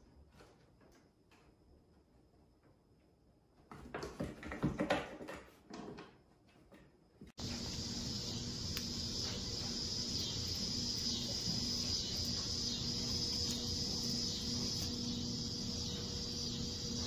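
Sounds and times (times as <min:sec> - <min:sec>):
faint low hum: 0:06.4 - 0:17.0
insects buzzing: 0:07.4 - 0:17.0.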